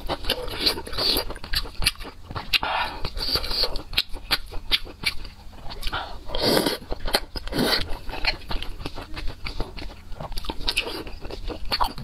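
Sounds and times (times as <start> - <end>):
chewing with wet mouth clicks: 0.0 - 12.0.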